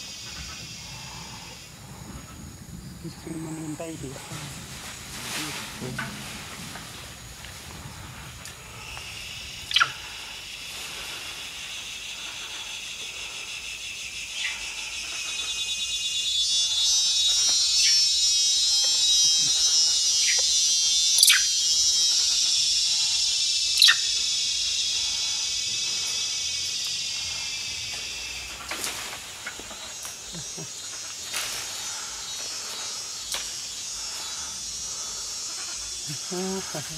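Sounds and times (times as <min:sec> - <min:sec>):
buzzing insect drone: 0:00.0 - 0:36.9
sharp chirps: 0:15.2 - 0:28.7.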